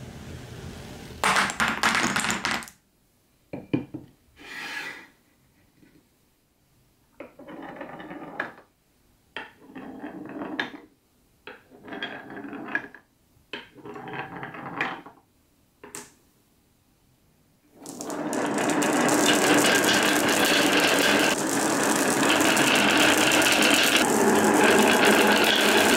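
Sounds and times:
marbles rolling in wooden grooves: 0:01.2 - 0:02.8, 0:07.2 - 0:08.7, 0:09.4 - 0:10.8, 0:11.5 - 0:13.0, 0:13.6 - 0:15.2, 0:17.8 - 0:25.9
marbles clacking against wood: 0:17.8 - 0:25.9.

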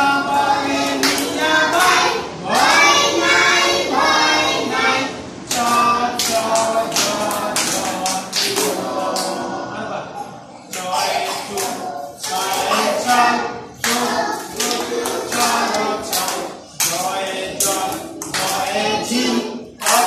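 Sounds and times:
children singing: 0:00.0 - 0:20.0
hands clapping: 0:00.9 - 0:02.0, 0:05.5 - 0:09.4, 0:13.8 - 0:18.8, 0:19.8 - 0:20.0.

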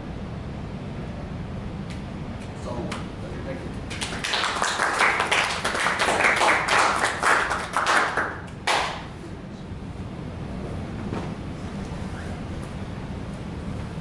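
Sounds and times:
audience clapping: 0:03.9 - 0:09.1.

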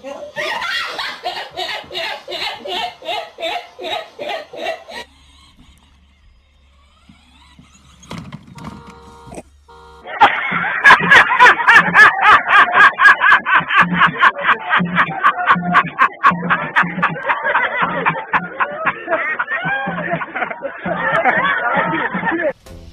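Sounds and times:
woman laughing: 0:00.1 - 0:05.1, 0:10.1 - 0:22.5
man laughing wildly: 0:00.4 - 0:05.1, 0:10.0 - 0:22.6.

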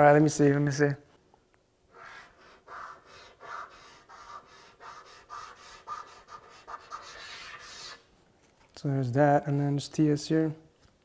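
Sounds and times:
marker rubbing on surface: 0:01.9 - 0:08.1.

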